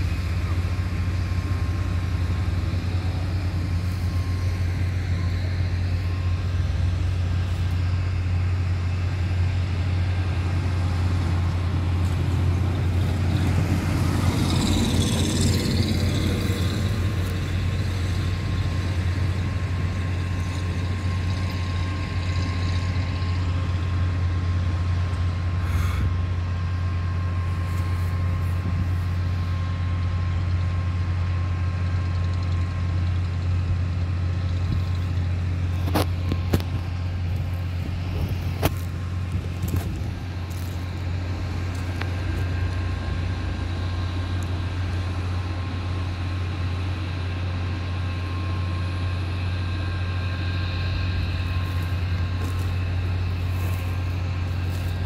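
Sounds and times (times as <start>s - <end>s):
diesel machinery droning: 0.0s - 55.0s.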